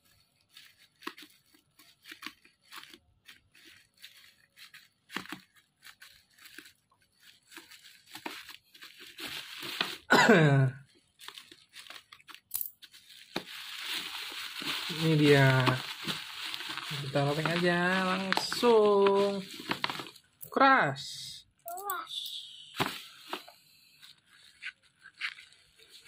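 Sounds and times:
bubble wrap tearing and crinkling: 0.0 - 20.4, 22.8 - 26.0.

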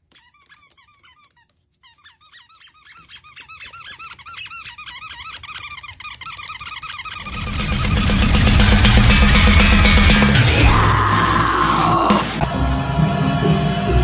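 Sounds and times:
rubber squeaky toy squeaking: 0.0 - 7.4.

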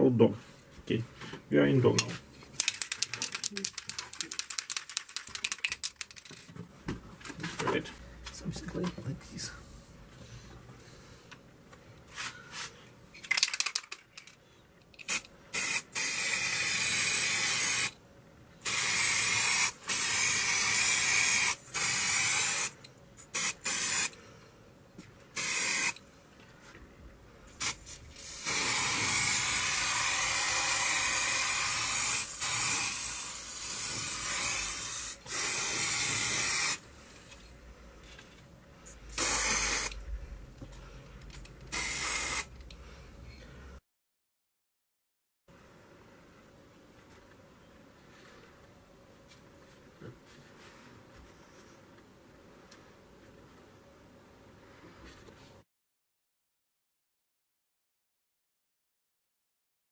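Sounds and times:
spray paint can hissing: 15.1 - 17.9, 18.6 - 24.1, 25.4 - 26.0, 27.6 - 36.8, 39.1 - 40.0, 41.7 - 42.5.

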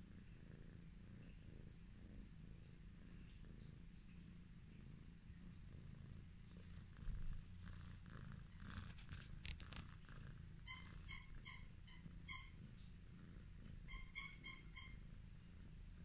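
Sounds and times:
cat purring: 0.0 - 16.0
faint clicks: 8.8 - 10.1.

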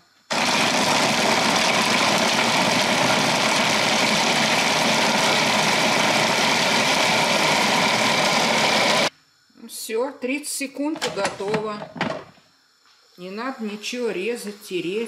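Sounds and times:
electric blender chopping vegetables: 0.3 - 9.1.

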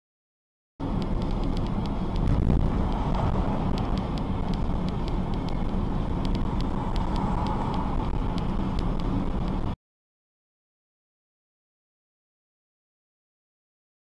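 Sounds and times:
car engine and tyre rumble: 0.8 - 9.8
faint ticks: 1.0 - 9.6.

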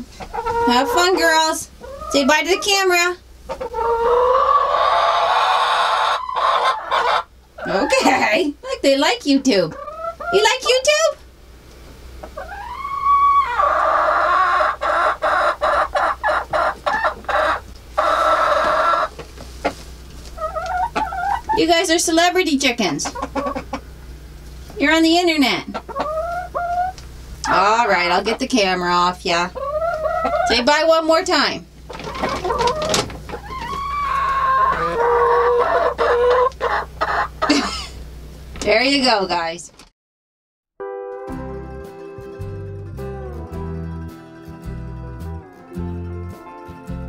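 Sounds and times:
hen cackling: 0.0 - 8.4, 9.5 - 11.1, 12.2 - 21.9, 22.8 - 24.1, 24.8 - 38.1.

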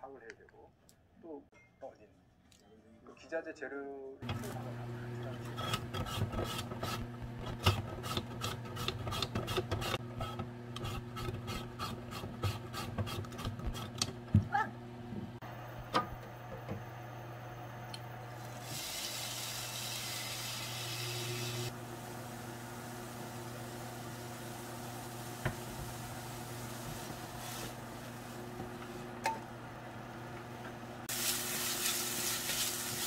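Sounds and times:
potato rasping on mandoline blade: 7.6 - 14.0
potato sizzling in oiled pan: 18.4 - 28.4, 31.1 - 33.0.

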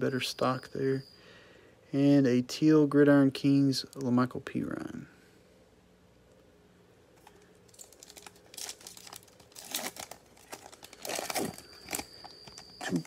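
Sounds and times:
foil wrapper crinkling and tearing: 7.2 - 13.0.

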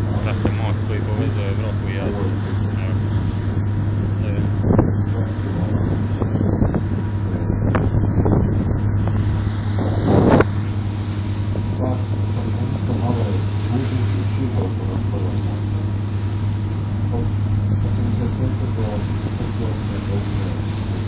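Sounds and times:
background voices: 0.0 - 3.5, 7.7 - 21.0
boat engine humming: 0.0 - 21.0
wind buffeting microphone: 0.0 - 21.0.

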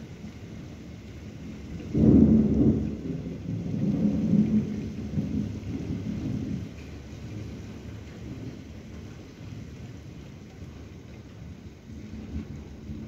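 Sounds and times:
rain falling: 0.0 - 13.0
thunder rumbling: 1.7 - 8.7.

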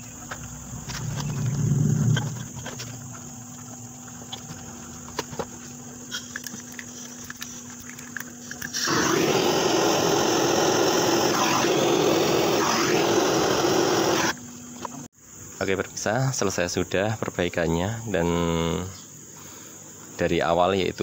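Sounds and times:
gas torch flame hissing: 8.5 - 14.4.

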